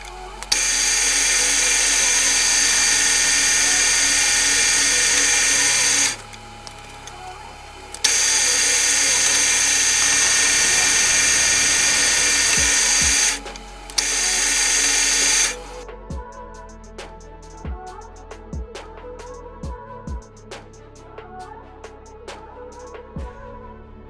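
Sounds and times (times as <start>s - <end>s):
metal lathe cutting with whine: 0.0s - 15.8s.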